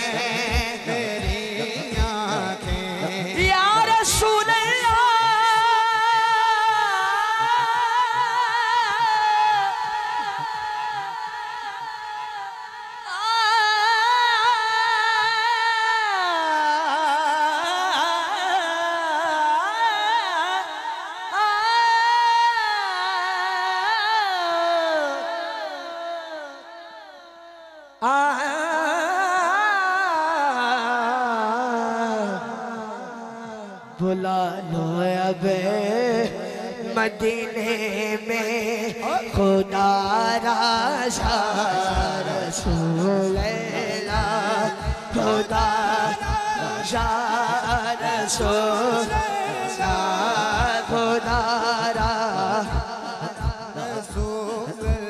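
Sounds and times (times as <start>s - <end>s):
person singing unaccompanied: 0.0s - 27.2s, 27.8s - 55.0s.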